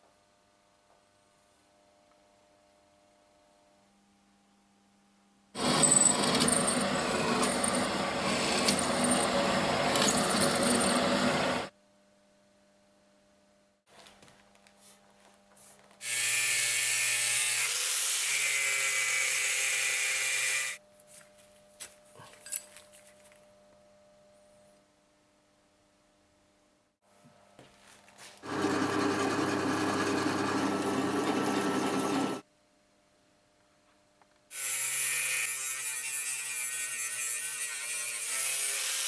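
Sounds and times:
hole saw cutting steel: 5.6s - 11.7s
angle grinder cutting steel: 16.0s - 20.8s, 34.6s - 39.0s.

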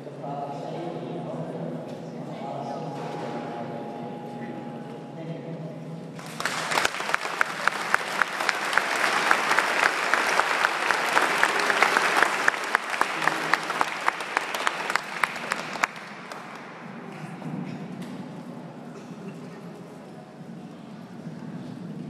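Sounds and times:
close sharp hand claps: 6.2s - 16.9s
crowd applauding: 6.2s - 17.2s.

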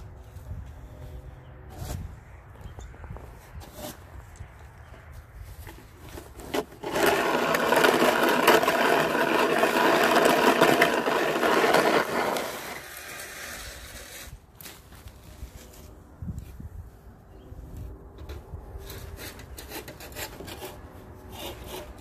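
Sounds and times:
snow shovel scraping pavement: 5.5s - 15.9s.

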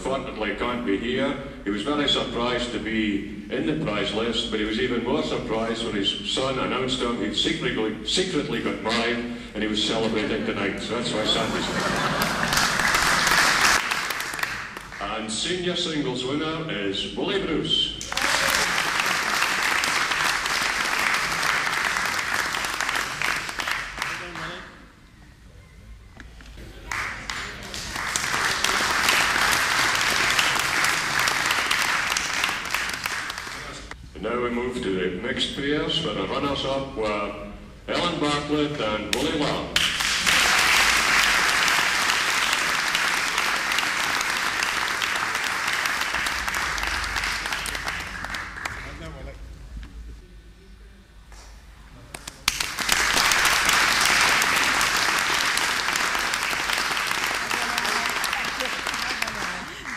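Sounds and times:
audience applause: 11.3s - 15.0s, 18.0s - 24.6s, 26.7s - 34.0s, 39.8s - 49.1s, 52.5s - 59.9s.

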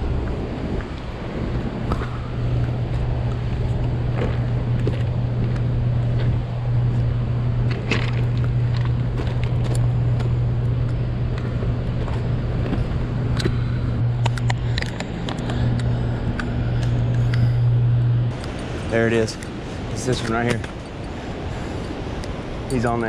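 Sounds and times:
steady low hum: 0.0s - 23.0s
footsteps on loose rocks: 0.2s - 15.9s.

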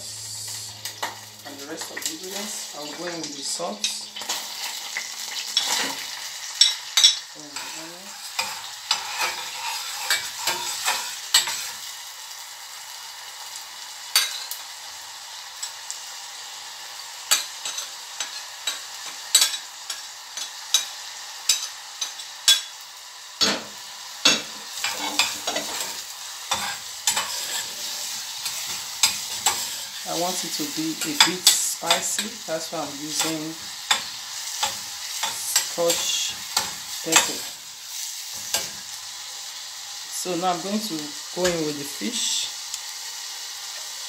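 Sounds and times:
vegetables sizzling in oil: 0.0s - 44.0s
metal spoon scraping a pot: 8.3s - 11.7s.

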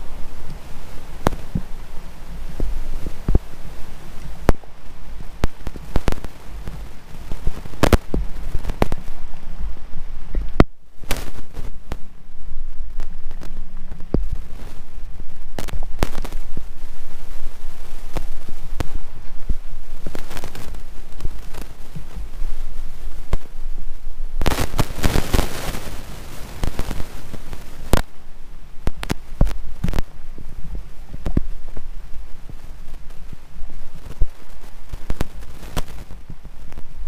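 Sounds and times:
wind buffeting microphone: 0.0s - 37.0s.

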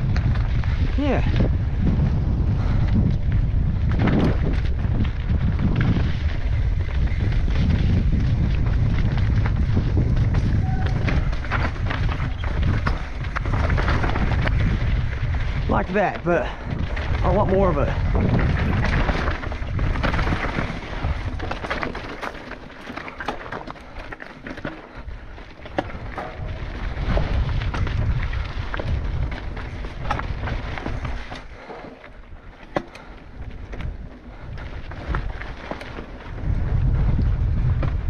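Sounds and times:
bike clicking and rattling: 0.0s - 38.0s
bike tyres rolling over rocks: 0.0s - 38.0s
wind buffeting microphone: 0.0s - 38.0s.

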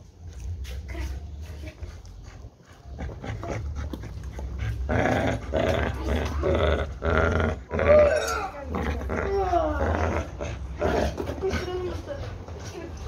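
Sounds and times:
dog growling: 2.9s - 12.4s.

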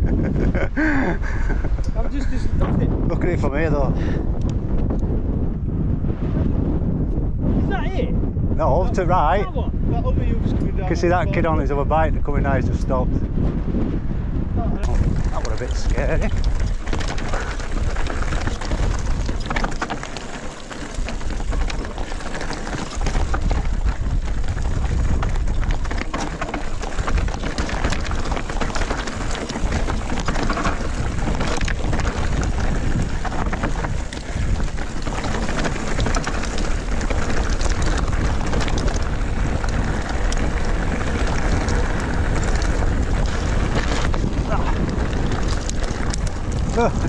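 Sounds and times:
bike rattling and clicking: 0.0s - 5.8s, 14.8s - 47.0s
wind buffeting microphone: 0.0s - 47.0s
tyres crunching on stones: 14.8s - 47.0s.

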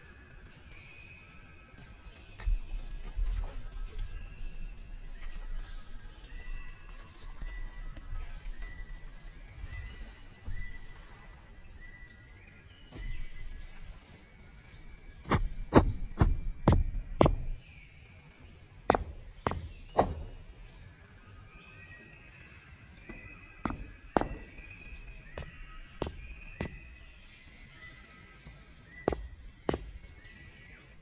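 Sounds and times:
hammer blows on wood: 18.9s - 20.4s, 23.1s - 27.0s, 28.4s - 30.2s.

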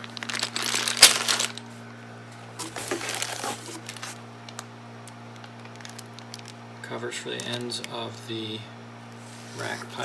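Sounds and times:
plastic bag crinkling: 0.0s - 1.8s, 2.6s - 4.7s, 5.3s - 6.6s, 7.2s - 8.0s.

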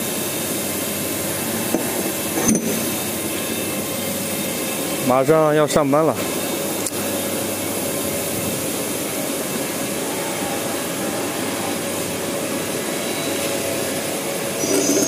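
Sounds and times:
machine whirring: 6.1s - 15.0s.

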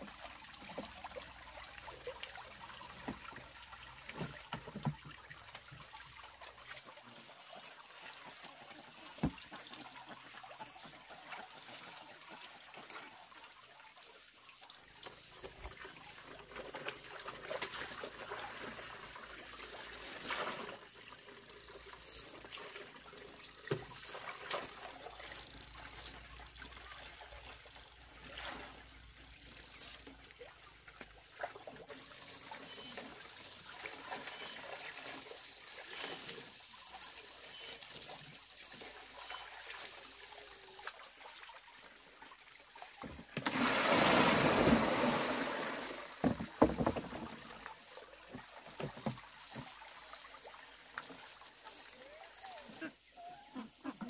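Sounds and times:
rush of water: 0.0s - 14.2s, 30.6s - 53.0s
water dripping and splashing: 0.0s - 52.8s.

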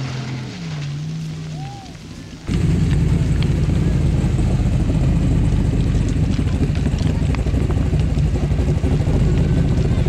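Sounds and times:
race car engine running: 2.1s - 10.0s.

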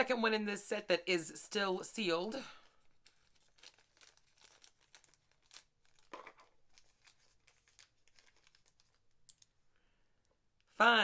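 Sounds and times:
plastic bag crinkling and tearing: 2.6s - 9.3s.

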